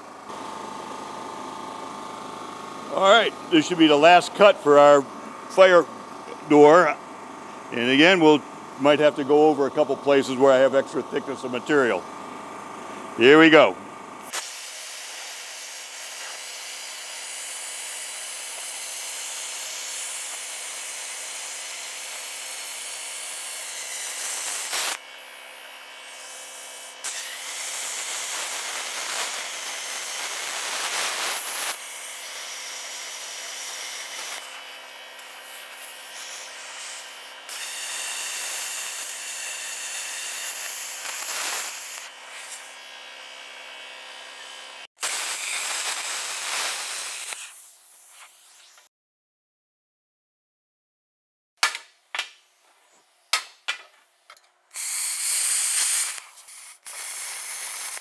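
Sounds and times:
plasma cutter arc hissing: 14.2 - 43.7, 44.4 - 48.9, 54.8 - 58.0.

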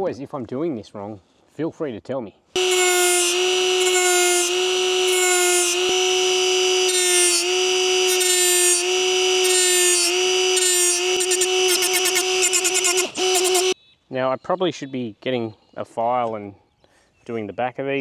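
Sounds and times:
die grinder whining: 2.6 - 13.8
disc grinding steel: 2.6 - 13.8.

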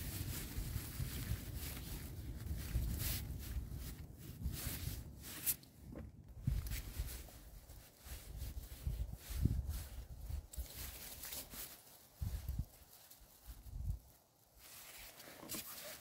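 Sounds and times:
footsteps through undergrowth: 0.0 - 5.8, 6.4 - 16.0
wind buffeting microphone: 0.0 - 10.9, 12.2 - 12.8.

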